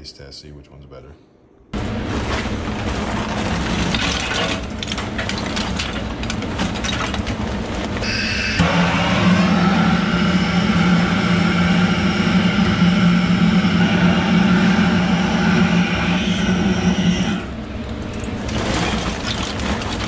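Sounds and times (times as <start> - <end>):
charcoal clattering and crackling: 1.8 - 8.1, 17.8 - 20.0
gas torch rushing hum: 1.8 - 20.0.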